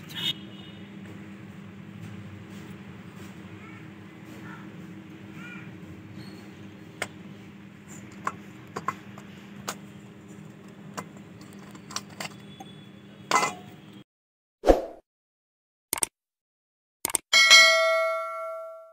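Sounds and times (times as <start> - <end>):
pieces clinking on metal bowl: 13.3 - 13.7.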